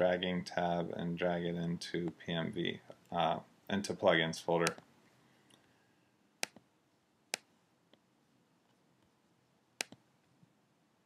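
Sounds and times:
computer mouse clicks: 0:06.4 - 0:06.7, 0:09.8 - 0:10.0.

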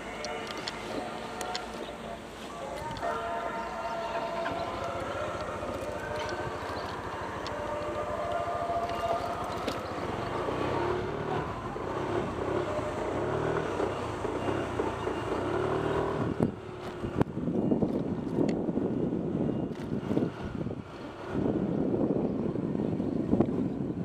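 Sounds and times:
motorcycle engine revving: 0:04.4 - 0:17.1.

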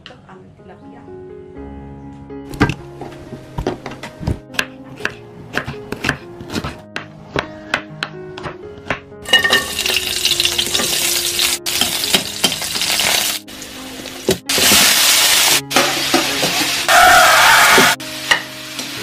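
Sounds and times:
knife chopping on wooden board: 0:03.6 - 0:09.1
food sizzling in hot oil: 0:09.3 - 0:19.0.

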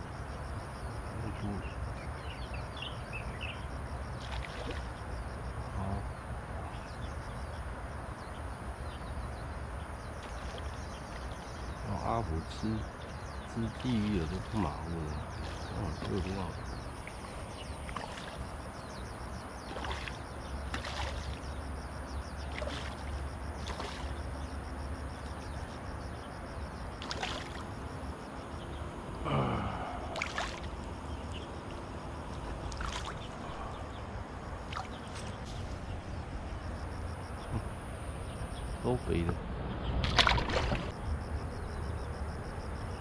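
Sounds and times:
fish splashing in water: 0:04.2 - 0:04.9, 0:17.0 - 0:18.5, 0:19.6 - 0:21.5, 0:22.4 - 0:24.3, 0:26.9 - 0:27.8, 0:30.0 - 0:30.8, 0:32.3 - 0:33.8, 0:40.0 - 0:40.9
steady low rumble: 0:27.6 - 0:43.0.

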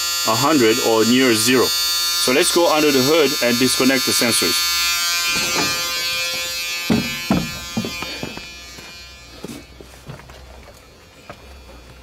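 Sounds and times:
steady electric buzz: 0:00.0 - 0:12.0
footsteps thudding down steps: 0:05.3 - 0:12.0.

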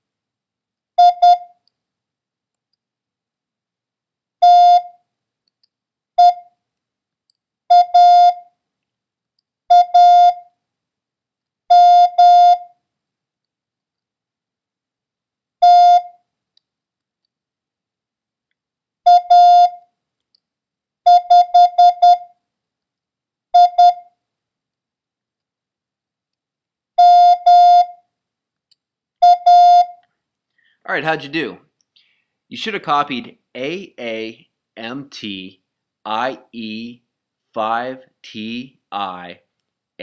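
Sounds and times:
morse code beeps: 0:01.0 - 0:01.5, 0:04.4 - 0:04.9, 0:07.7 - 0:08.4, 0:09.7 - 0:10.4, 0:11.7 - 0:12.7, 0:15.6 - 0:16.1, 0:19.1 - 0:19.8, 0:21.1 - 0:22.3, 0:23.6 - 0:24.1, 0:27.0 - 0:28.0, 0:29.2 - 0:30.0.

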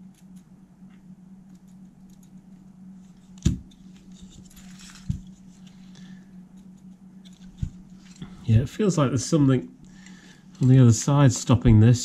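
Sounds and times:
steady low hum: 0:00.0 - 0:12.0
scraping rustle: 0:03.1 - 0:05.8.

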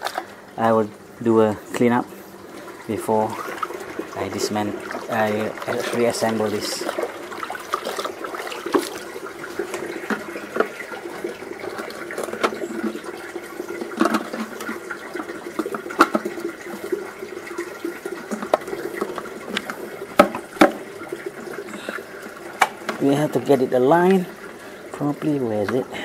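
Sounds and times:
water sloshing in a bucket: 0:00.0 - 0:26.0
brush scrubbing: 0:04.4 - 0:10.3.

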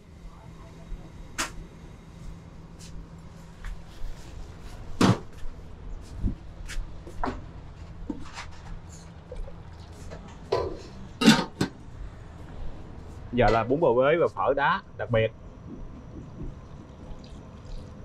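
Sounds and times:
faint low hum: 0:00.0 - 0:18.0
bowls and utensils clattering: 0:08.2 - 0:11.8.

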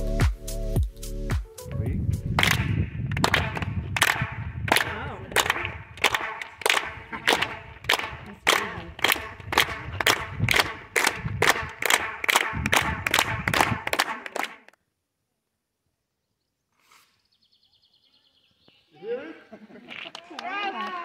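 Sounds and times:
group clapping in unison: 0:02.3 - 0:14.8, 0:19.9 - 0:21.0.

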